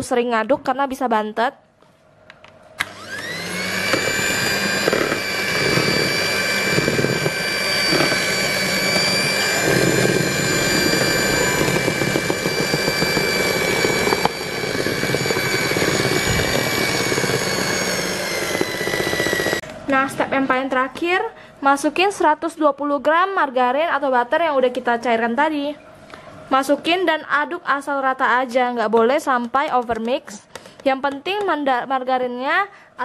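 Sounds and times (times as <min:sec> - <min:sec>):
electric hand mixer motor whine: 0:02.8 - 0:19.7
beaters churning batter: 0:03.2 - 0:19.7.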